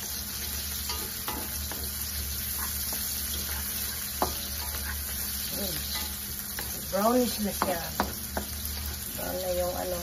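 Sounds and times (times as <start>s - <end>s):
onions sizzling in hot oil: 0.0s - 10.0s
wooden spatula scraping a wok: 1.7s - 7.5s.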